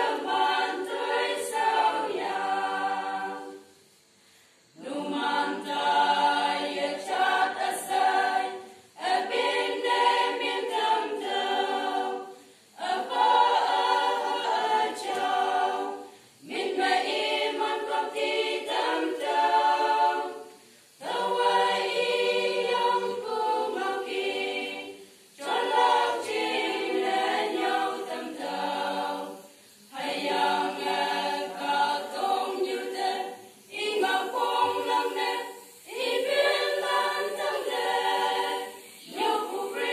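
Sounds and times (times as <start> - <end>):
women's choir singing: 0.0 - 39.9.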